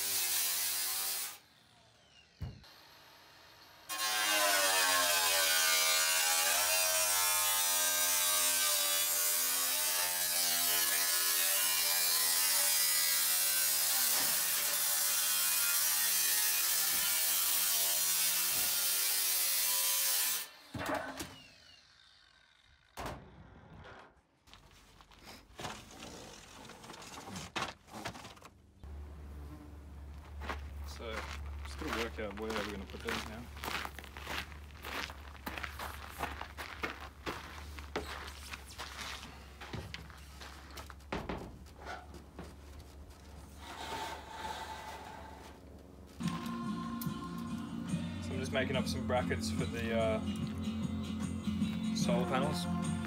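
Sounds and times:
power saw cutting sheet metal: 0:00.0 - 0:23.0, 0:43.6 - 0:45.6.

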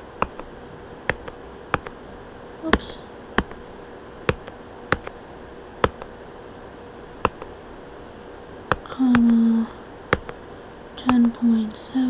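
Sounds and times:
computer mouse clicking: 0:00.0 - 0:02.0, 0:02.7 - 0:03.6, 0:04.3 - 0:05.2, 0:05.8 - 0:06.1, 0:07.2 - 0:07.5, 0:08.7 - 0:09.4, 0:10.1 - 0:10.4, 0:11.0 - 0:11.4
person humming: 0:08.8 - 0:09.8.

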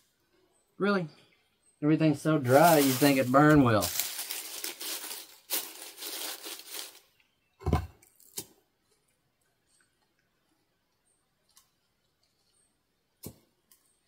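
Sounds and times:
dry leaves crumpling and rustling: 0:02.4 - 0:07.1.

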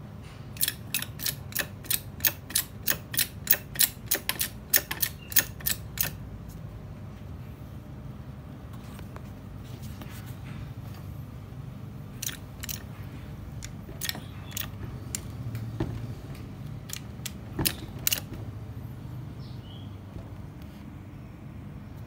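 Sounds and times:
press clicking and ticking: 0:00.6 - 0:06.2, 0:12.2 - 0:13.0, 0:13.6 - 0:18.5.

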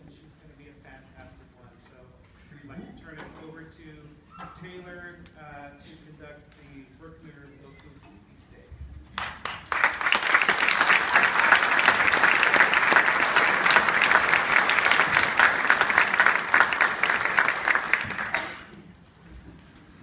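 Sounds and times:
audience applauding: 0:09.2 - 0:18.9.

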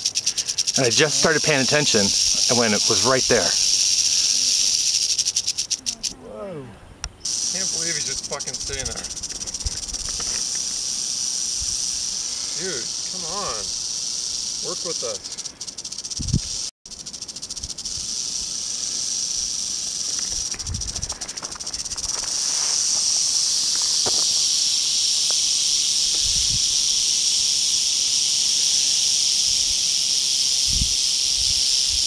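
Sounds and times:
rattlesnake rattling its tail: 0:00.0 - 0:06.2, 0:07.2 - 0:32.0.

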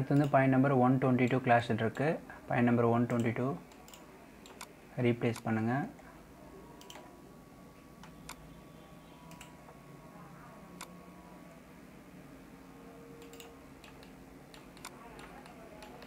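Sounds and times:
low room hum: 0:00.0 - 0:16.0
computer mouse clicks: 0:03.1 - 0:04.7, 0:06.8 - 0:07.1, 0:09.2 - 0:09.6, 0:13.2 - 0:16.0.

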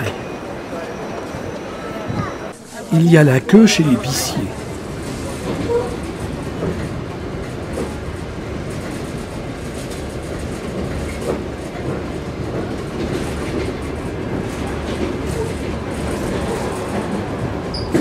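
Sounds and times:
train rumbling on rails: 0:04.0 - 0:18.0.

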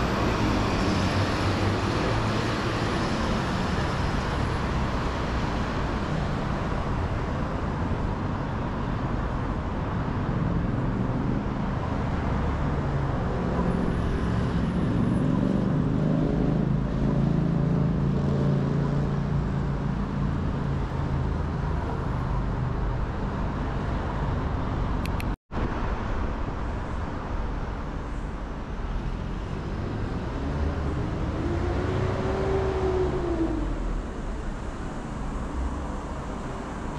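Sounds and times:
cars passing: 0:00.0 - 0:36.9
heavy vehicle engine hum: 0:00.0 - 0:36.9.

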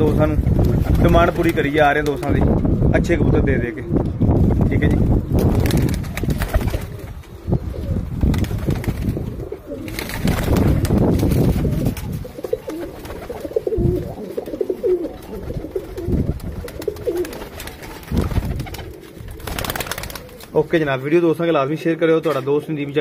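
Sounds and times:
pigeons cooing: 0:05.9 - 0:10.9, 0:11.6 - 0:20.6.

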